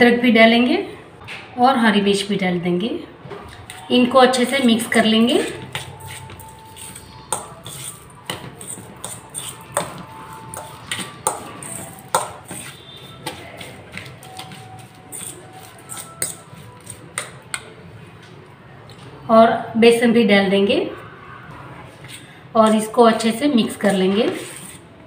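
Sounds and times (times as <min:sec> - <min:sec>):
utensil clinking and scraping bowl: 0:04.3 - 0:17.7.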